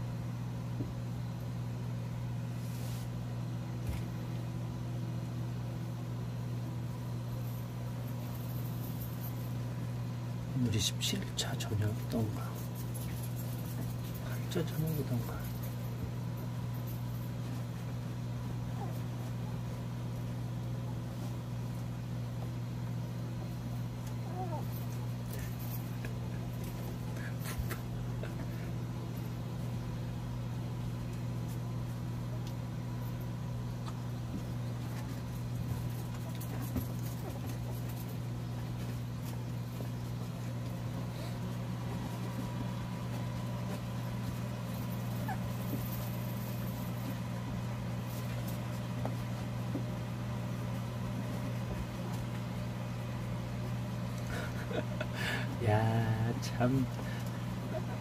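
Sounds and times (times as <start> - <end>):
electric fan humming: 0.0 - 58.0
puppies nursing: 11.9 - 55.0.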